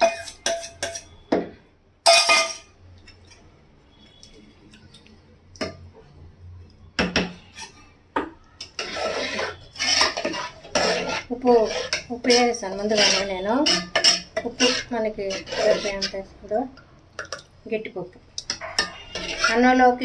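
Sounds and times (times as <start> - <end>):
utensils knocking and scraping pot: 0.0 - 1.5, 2.1 - 3.3, 7.0 - 16.3, 18.4 - 20.0
metal cookware clank: 2.0 - 2.7.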